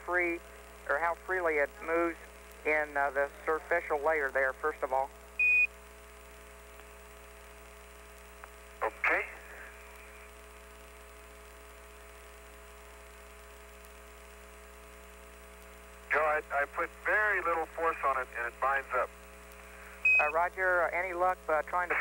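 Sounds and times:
person speaking over radio: 0.0s - 5.1s, 8.8s - 9.8s, 16.1s - 19.1s, 20.2s - 22.0s
radio hum and hiss: 0.0s - 22.0s
fixed radio tones: 8.8s - 10.5s, 16.0s - 22.0s.

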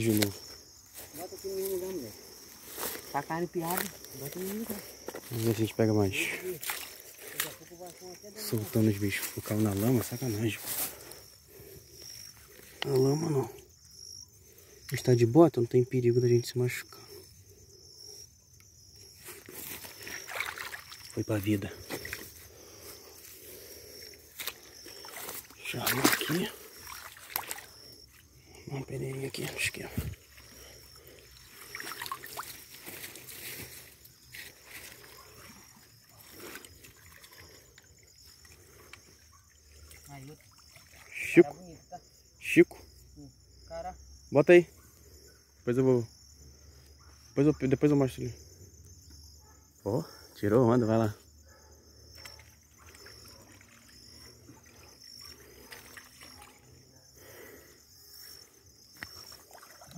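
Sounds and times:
creek water splashing: 0.0s - 13.8s, 19.0s - 41.6s, 52.0s - 59.9s
insects chirring: 0.0s - 59.9s.

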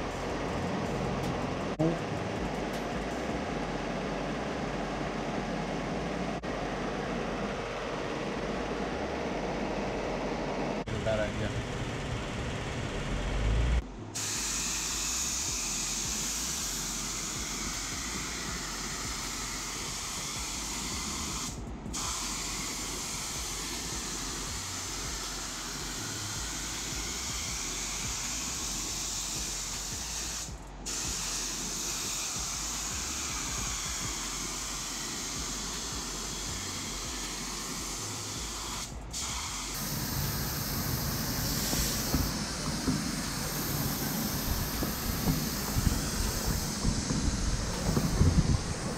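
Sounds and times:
paint spray gun hissing: 14.2s - 48.9s.

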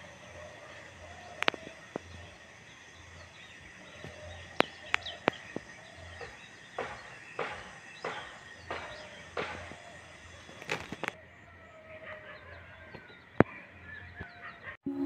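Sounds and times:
faint bird chirps: 0.0s - 15.0s
sharp clicks: 1.4s - 2.4s, 4.0s - 9.8s, 10.5s - 11.2s.

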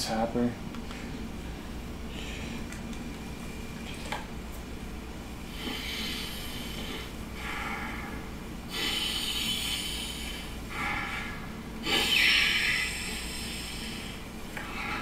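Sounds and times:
man gasping through face mask: 5.6s - 15.0s.

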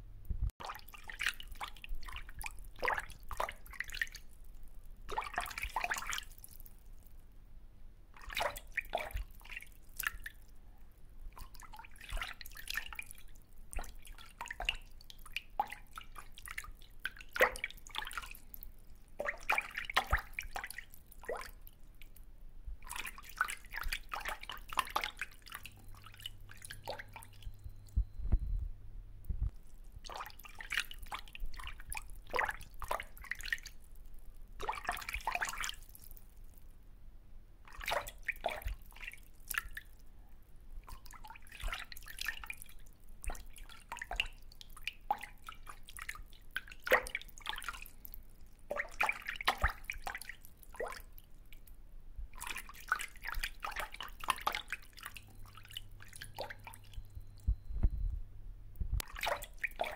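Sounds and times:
water dripping and splashing: 0.4s - 7.1s, 8.2s - 10.5s, 11.3s - 22.2s, 22.8s - 27.9s, 29.4s - 36.6s, 37.6s - 40.0s, 40.8s - 57.5s, 59.0s - 59.9s
low thump: 57.6s - 58.2s.

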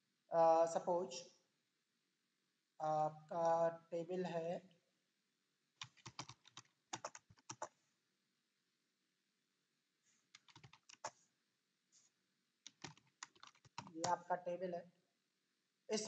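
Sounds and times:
typing on computer keyboard: 5.8s - 7.7s, 10.3s - 11.2s, 12.6s - 14.2s.

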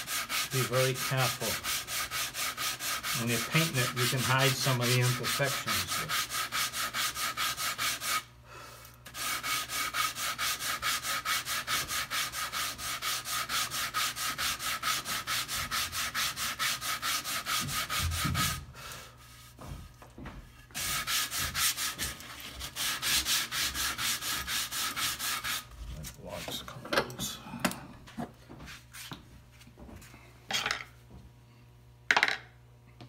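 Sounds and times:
sandpaper rubbing on wood: 0.0s - 8.3s, 9.1s - 18.6s, 20.7s - 26.6s.

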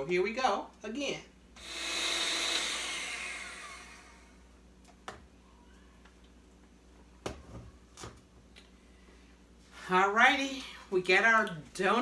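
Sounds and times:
electric hand mixer spinning down: 1.6s - 4.4s.

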